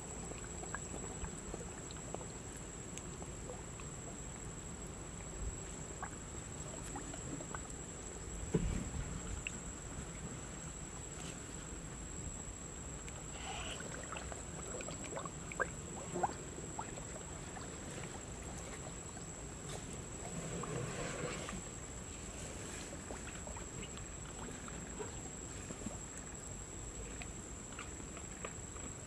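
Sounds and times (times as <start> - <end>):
water lapping and sloshing: 0.0 - 29.0
water drips and splashes: 12.9 - 20.9.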